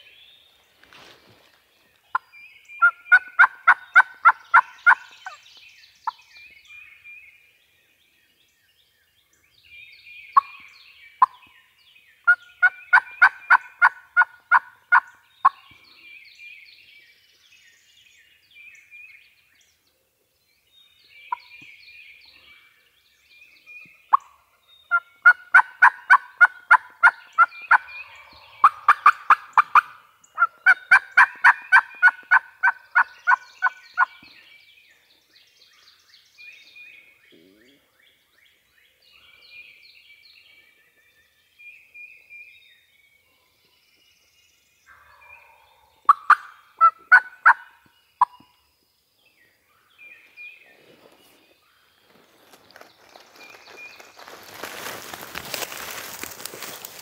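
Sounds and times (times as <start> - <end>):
songbirds chirping: 0.0 - 57.0
wild turkeys calling: 2.1 - 5.4, 10.4 - 10.6, 12.3 - 15.7, 24.1 - 34.3, 44.9 - 48.5, 52.8 - 57.0.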